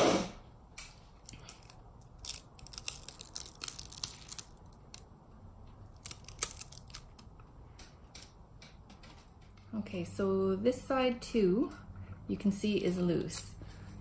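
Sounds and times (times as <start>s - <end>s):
resin crackling as peeled: 0.8s - 7.4s.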